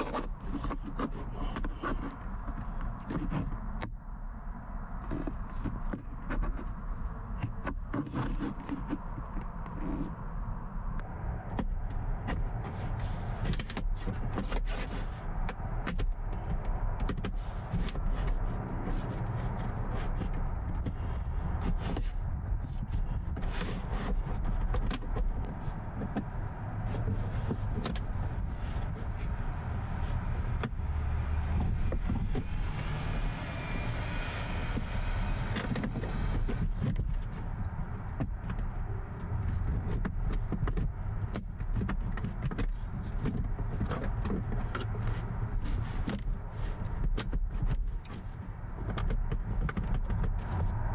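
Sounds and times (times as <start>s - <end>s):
plastic tool scraping and clicking: 0.0s - 4.1s, 5.0s - 10.2s, 11.0s - 50.9s
steady low rumble: 15.1s - 47.0s.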